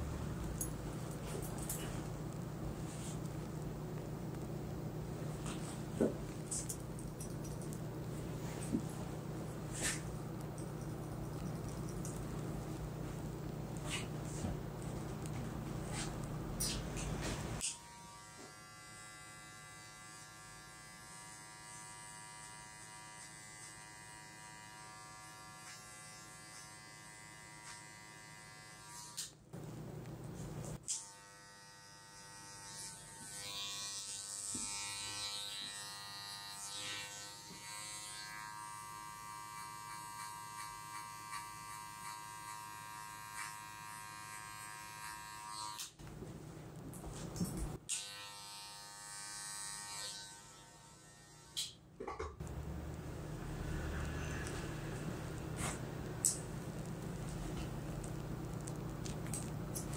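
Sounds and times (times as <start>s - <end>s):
electric hair clipper buzzing: 17.6s - 29.4s, 30.8s - 46.0s, 47.9s - 51.8s.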